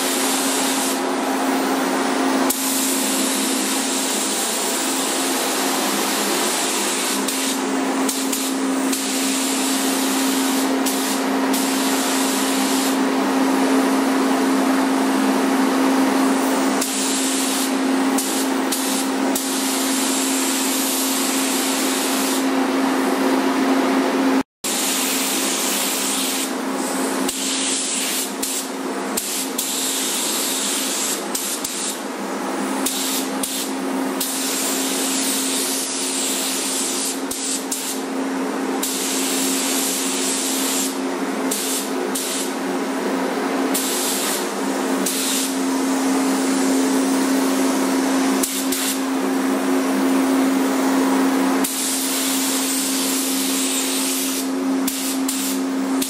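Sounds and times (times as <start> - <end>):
spray gun hissing: 0.0 - 1.8, 2.5 - 13.0, 16.4 - 22.5, 24.7 - 32.0, 32.8 - 38.1, 38.8 - 42.6, 43.7 - 46.4, 48.4 - 49.0, 51.6 - 55.7
steady air system hum: 0.0 - 56.0.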